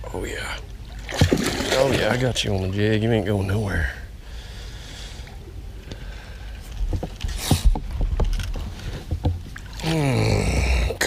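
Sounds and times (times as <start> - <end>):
water splash: 0.9 - 2.4.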